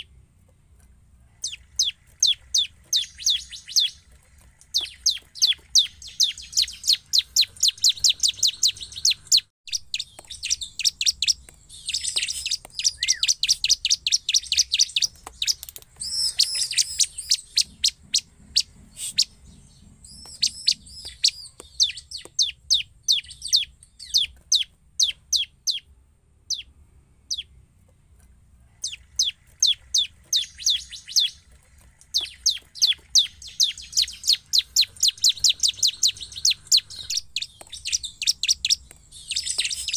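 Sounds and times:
bird singing sharp high notes: 1.4s - 4.0s, 4.8s - 18.3s, 32.2s - 39.9s.

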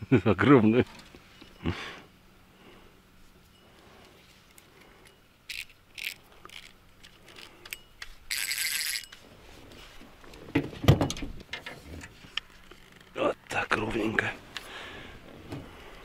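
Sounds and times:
fishing reel clicks and rattles: 5.0s - 9.2s.

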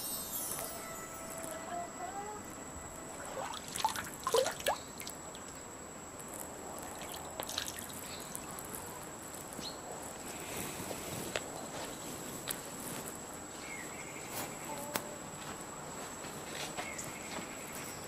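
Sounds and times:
faint steady high tone: 0.0s - 5.0s.

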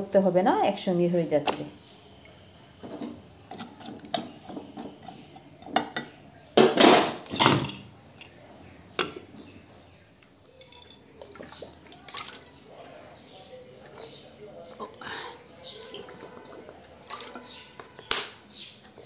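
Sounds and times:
metal pot clattering: 2.9s - 7.9s.

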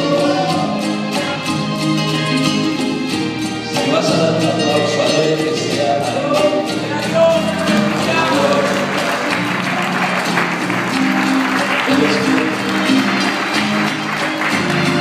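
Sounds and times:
man singing into microphone: 0.0s - 2.7s, 3.6s - 9.2s
instrumental backing music: 0.0s - 15.0s.

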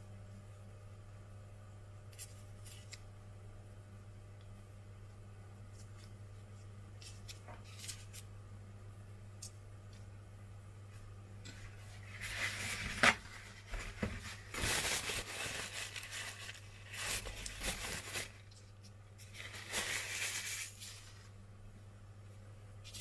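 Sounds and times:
paper rustling and crinkling: 2.2s - 3.0s, 5.7s - 8.3s, 11.4s - 21.3s.

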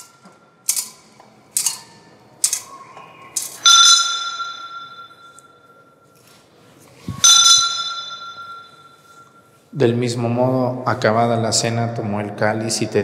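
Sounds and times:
altar bells ringing: 3.6s - 6.3s, 7.1s - 9.7s.

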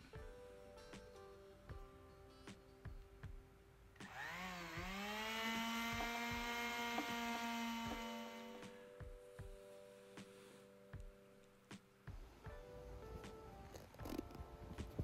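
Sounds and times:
power tool humming: 4.0s - 8.8s.

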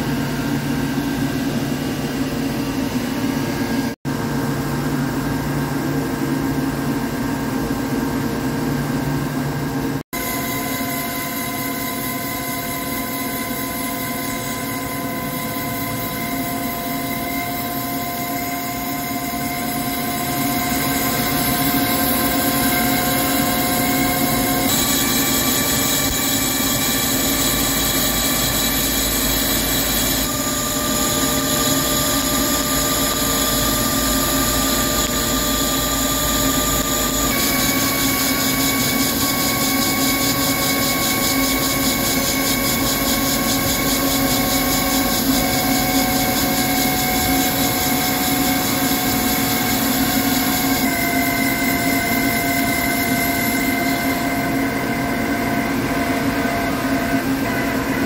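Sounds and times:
lathe spindle whining: 10.2s - 58.0s.

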